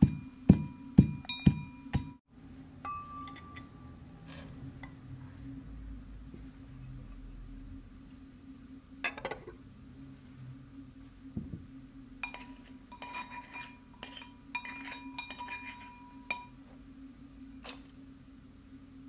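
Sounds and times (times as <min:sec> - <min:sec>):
brass mortar and pestle clinking: 0:00.0 - 0:02.2, 0:02.8 - 0:03.8, 0:12.2 - 0:16.6
steady low hum: 0:00.0 - 0:19.0.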